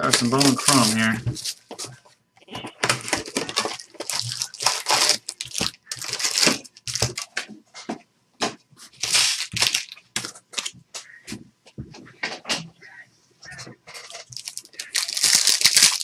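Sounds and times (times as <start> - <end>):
foil wrappers tearing and crinkling: 0.0 - 1.6, 2.8 - 7.4, 9.0 - 10.7, 14.0 - 16.0.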